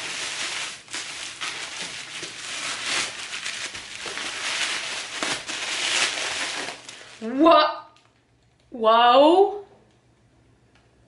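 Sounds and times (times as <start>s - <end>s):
tissue paper rustling: 0.0s - 7.4s.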